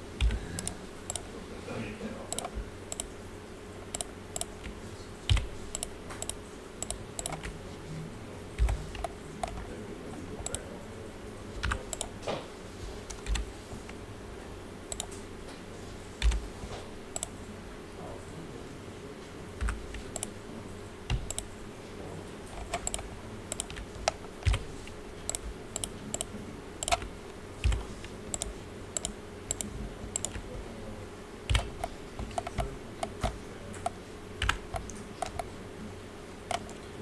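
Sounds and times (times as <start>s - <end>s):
faint steady hum: 0.0s - 37.0s
keyboard and mouse clicking: 0.2s - 1.3s, 2.3s - 3.2s, 3.9s - 7.6s, 8.6s - 9.7s, 10.4s - 10.7s, 11.6s - 12.2s, 13.1s - 14.0s, 14.9s - 15.2s, 16.2s - 16.4s, 17.1s - 17.3s, 19.6s - 20.4s, 21.1s - 21.5s, 22.5s - 30.6s, 31.5s - 35.5s, 36.5s - 36.9s.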